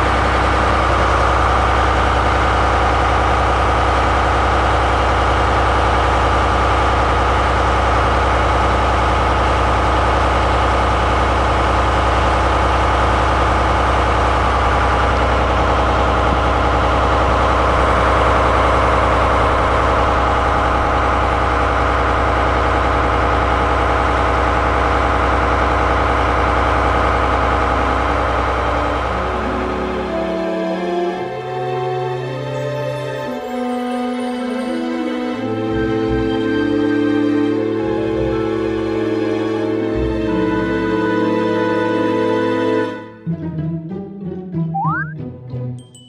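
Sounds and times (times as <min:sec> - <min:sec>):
diesel engine idling: 0:00.0 - 0:30.4.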